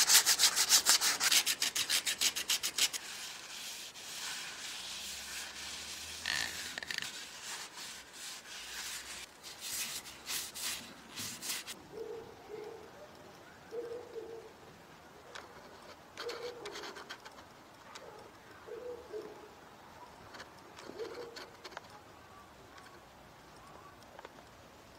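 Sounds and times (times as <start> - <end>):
cloth rubbing wood: 0.0 - 11.8.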